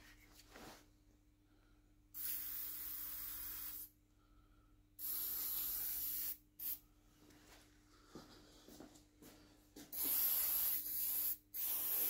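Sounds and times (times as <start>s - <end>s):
aerosol spray can hissing: 2.2s - 3.9s, 5.0s - 6.8s, 9.9s - 12.0s.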